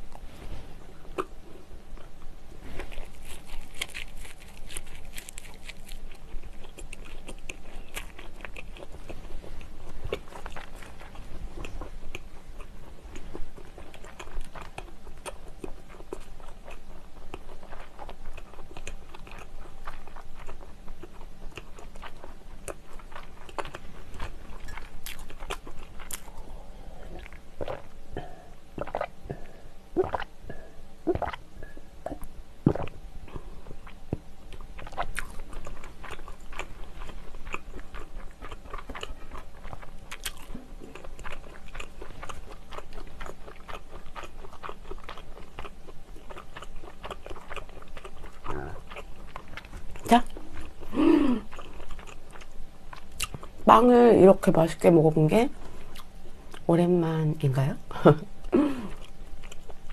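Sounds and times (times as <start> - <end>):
close chewing with wet clicks: 1.1 - 26.4, 27.1 - 28.0, 28.8 - 30.3, 31.1 - 31.4, 32.0 - 53.7, 58.4 - 59.9
person swallowing drink: 27.1 - 33.0.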